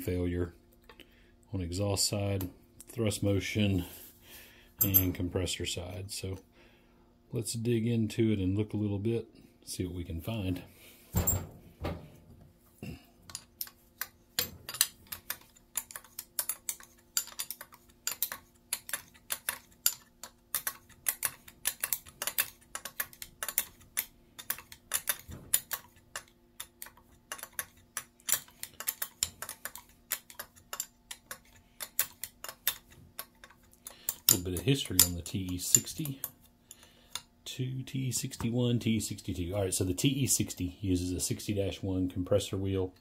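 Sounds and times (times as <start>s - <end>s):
wrench clicking on metal: 13.3s - 37.3s.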